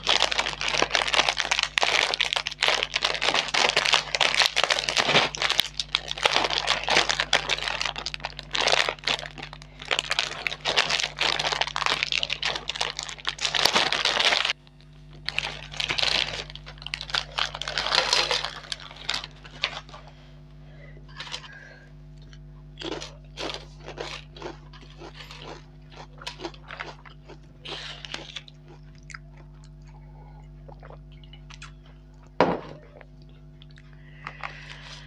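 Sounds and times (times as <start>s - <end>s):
snack packets crinkling and tearing: 0.0s - 20.1s, 21.1s - 21.7s, 22.8s - 29.5s, 34.2s - 35.0s
soft packet rustling: 15.2s - 20.1s.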